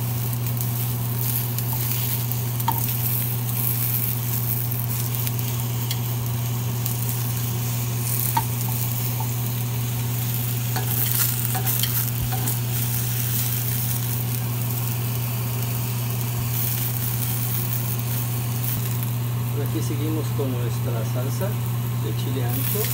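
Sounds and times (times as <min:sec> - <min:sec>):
steady low hum: 0:00.0 - 0:22.9
vegetables sizzling in a skillet: 0:00.0 - 0:22.9
metal tongs clicking on pan: 0:10.8 - 0:12.6.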